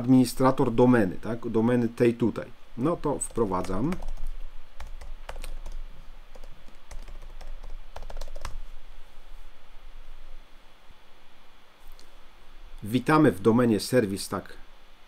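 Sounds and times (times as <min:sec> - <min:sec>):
typing on computer keyboard: 0:03.3 - 0:08.6.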